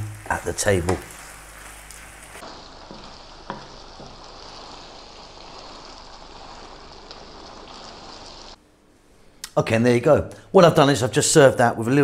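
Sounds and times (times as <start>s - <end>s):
sauce sizzling in frying pan: 0.0s - 8.6s
wooden spoon stirring: 0.0s - 8.6s.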